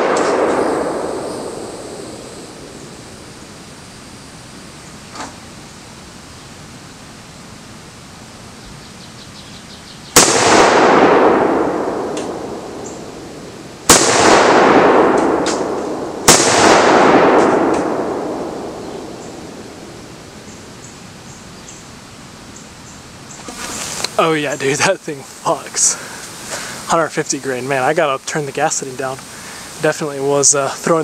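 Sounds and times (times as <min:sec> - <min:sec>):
shotgun blasts with echo: 0:00.0 - 0:03.1, 0:10.2 - 0:20.1.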